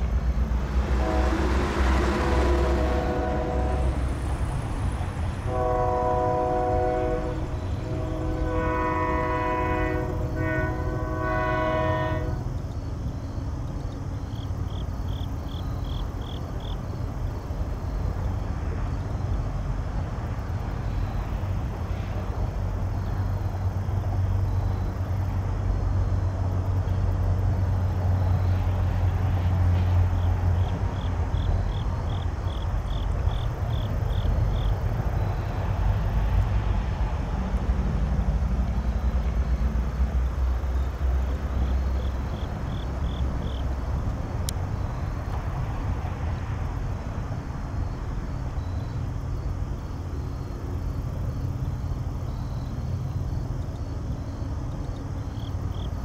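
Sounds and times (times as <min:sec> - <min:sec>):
diesel locomotive engine rumble: 0:00.0 - 0:56.0
rapid insect chirps: 0:12.3 - 0:19.4, 0:38.6 - 0:45.7, 0:47.6 - 0:56.0.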